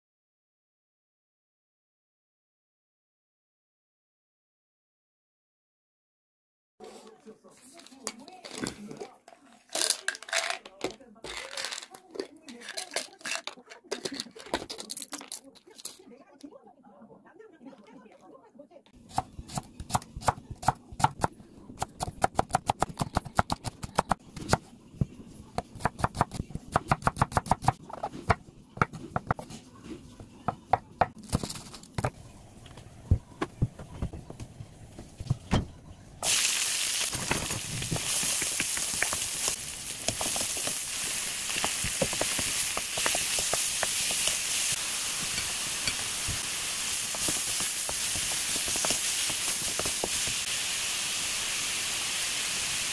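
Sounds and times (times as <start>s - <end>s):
food sizzling in hot oil: 36.2s - 52.9s.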